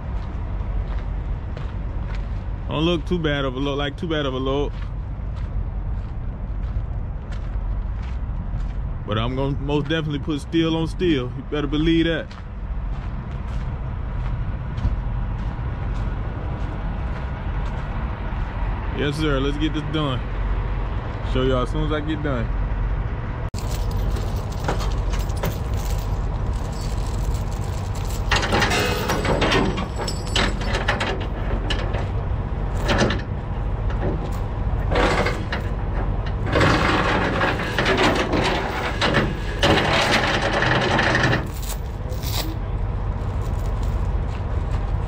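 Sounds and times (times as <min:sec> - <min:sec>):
chains rattling on metal: 0:23.6 - 0:33.3, 0:33.9 - 0:42.6.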